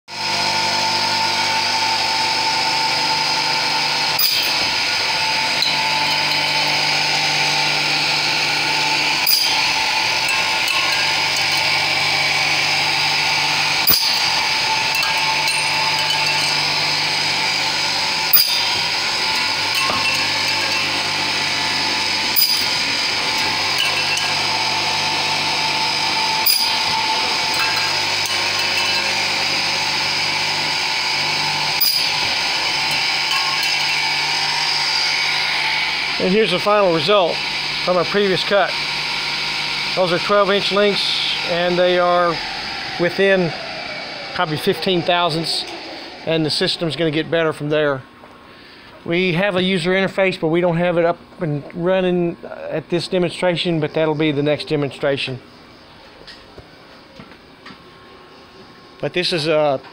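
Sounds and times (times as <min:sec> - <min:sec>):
circular saw blade whine: 0:00.1 - 0:51.2, 0:51.8 - 0:59.9
saw cutting metal hit: 0:02.4 - 0:47.2.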